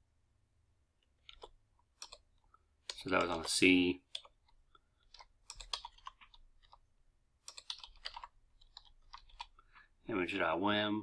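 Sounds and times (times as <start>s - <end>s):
keyboard typing: 1.0s - 9.8s.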